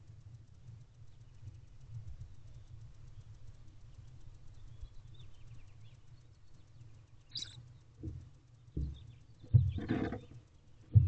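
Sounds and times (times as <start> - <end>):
faint low rumble: 0.0 - 11.0
owlets chirping: 6.6 - 7.9.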